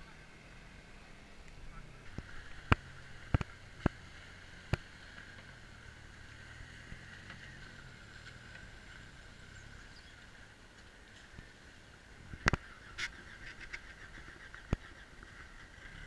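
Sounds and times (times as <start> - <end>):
faint pickup truck engine: 0.0 - 16.0.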